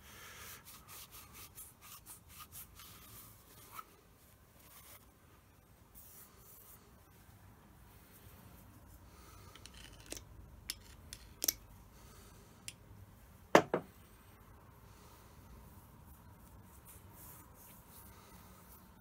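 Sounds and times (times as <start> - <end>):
metal parts knocking on wooden bench: 13.6 - 13.9.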